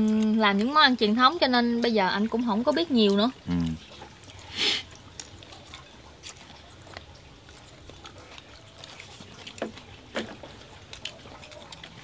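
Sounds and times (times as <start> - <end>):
chewing: 0.0 - 12.0
soup slurping: 3.4 - 6.6.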